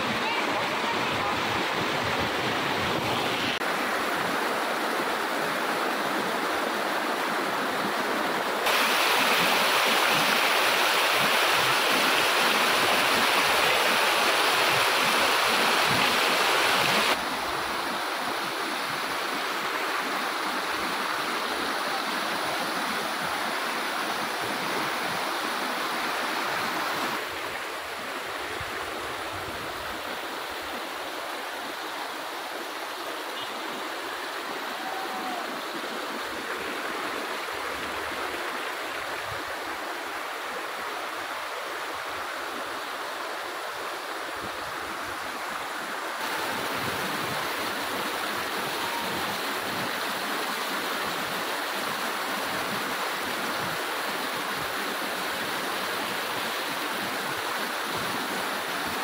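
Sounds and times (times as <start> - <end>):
stream rushing over boulders: 0.0 - 59.0.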